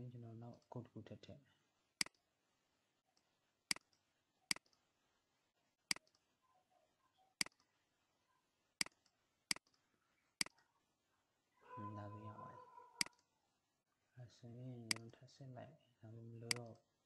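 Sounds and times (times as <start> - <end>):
computer mouse button clicks: 16.5 - 16.8.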